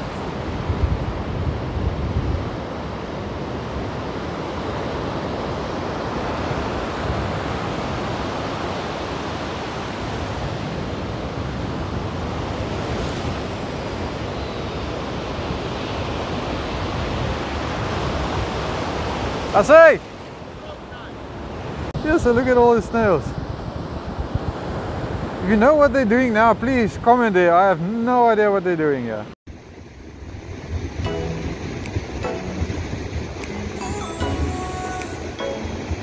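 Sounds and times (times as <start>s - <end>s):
wind buffeting microphone: 0.0s - 20.6s, 21.2s - 27.1s, 29.9s - 33.8s
ocean surf breaking: 0.0s - 36.0s.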